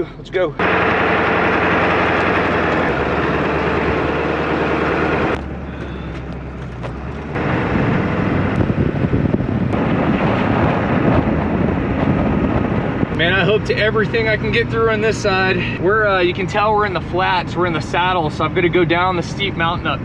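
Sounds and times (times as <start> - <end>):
diesel engine running: 0.0 - 20.0
tyre and road noise: 0.0 - 20.0
wind buffeting microphone: 5.2 - 15.8.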